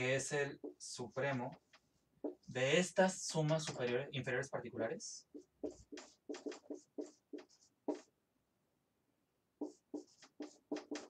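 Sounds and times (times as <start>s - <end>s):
marker squeaking on whiteboard: 0.6s - 2.5s, 5.3s - 8.1s, 9.6s - 11.0s.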